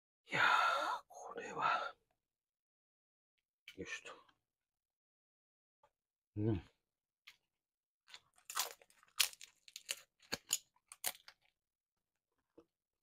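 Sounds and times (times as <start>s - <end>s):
crunchy food being chewed: 8.1s - 11.5s.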